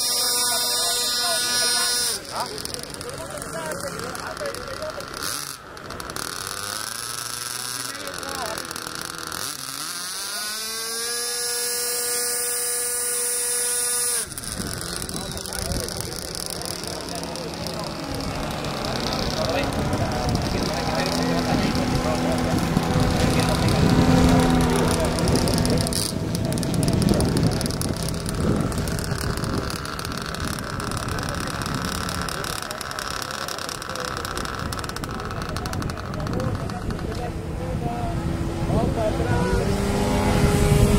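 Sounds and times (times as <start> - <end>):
model jet electric motor whining: 0.0 - 37.8
faint voices: 0.0 - 40.9
wind buffeting microphone: 14.2 - 33.0, 34.0 - 40.9.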